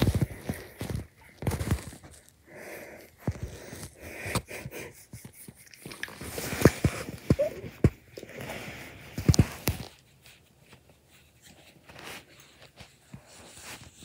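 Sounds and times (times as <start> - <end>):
dog breathing noisily: 0.0 - 9.6.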